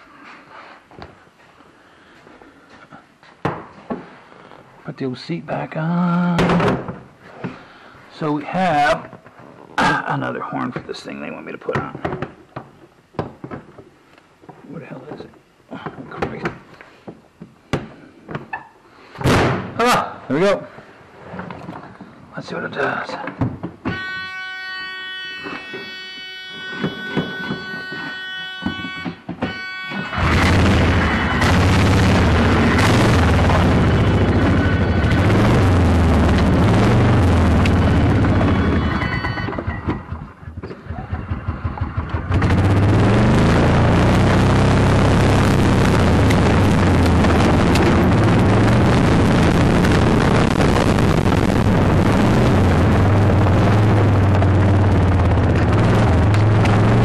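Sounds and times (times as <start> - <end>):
engine sputtering: 30.1 - 57.0.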